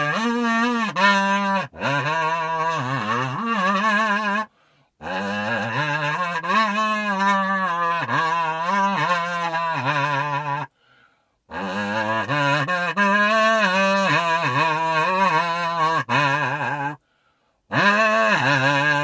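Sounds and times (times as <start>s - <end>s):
kazoo melody: 0.0s - 19.0s
short breaths: 4.5s - 5.0s, 10.7s - 11.5s, 17.0s - 17.7s.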